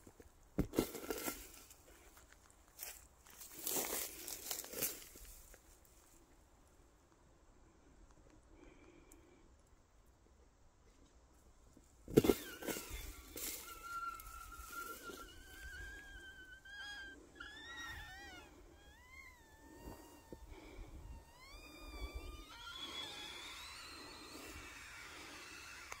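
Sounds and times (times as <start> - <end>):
air squealing out of toy ball: 12.1 - 26.0.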